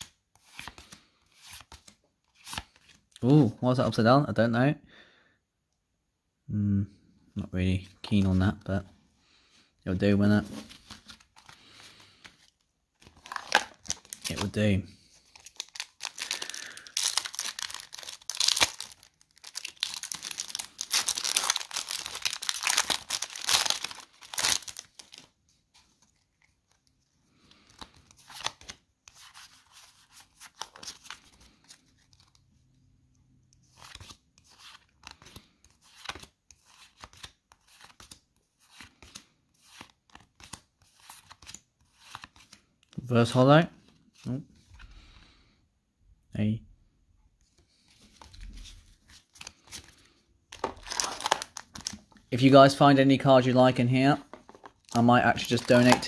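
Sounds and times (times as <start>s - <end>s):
trading cards rustling and clicking: 10.2s - 32.4s, 33.5s - 43.0s, 47.5s - 52.4s, 54.2s - 56.0s
foil wrapper tearing and crumpling: 15.4s - 25.2s, 50.7s - 51.9s.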